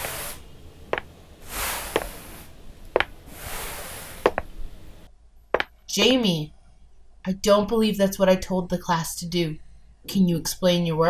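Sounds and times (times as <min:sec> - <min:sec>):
paintbrush swishing on paper: 0:00.0 - 0:02.6.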